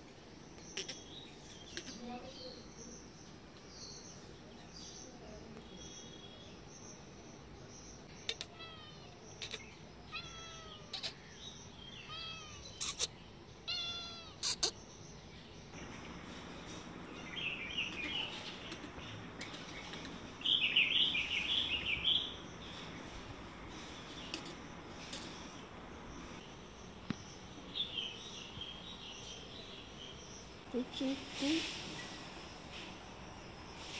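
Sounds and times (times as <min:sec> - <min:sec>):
cat meowing: 0:08.2 - 0:11.2, 0:12.0 - 0:14.7.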